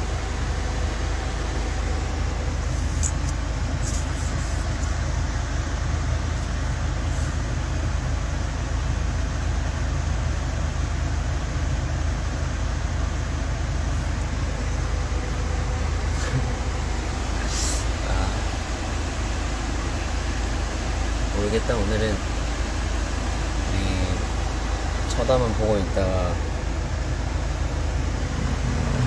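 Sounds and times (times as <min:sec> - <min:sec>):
van cabin rumble and hiss: 0:00.0 - 0:29.0.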